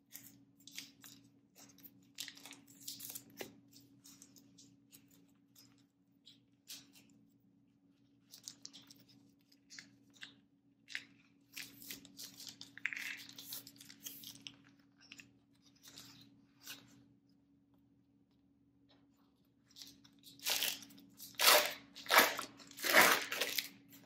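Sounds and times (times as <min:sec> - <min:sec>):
foil wrapper crinkling: 0:19.7 - 0:24.0.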